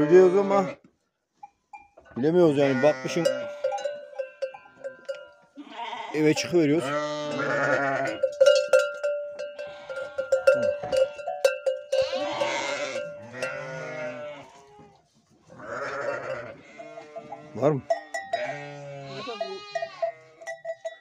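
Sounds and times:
sheep bleating: 0.0 - 0.9, 2.4 - 3.9, 5.6 - 8.3, 9.4 - 20.6.

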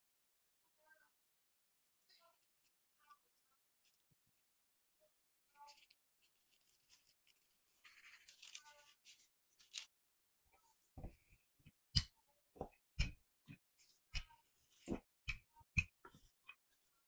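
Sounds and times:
plastic gloves and wrap crinkling: 5.6 - 9.9.

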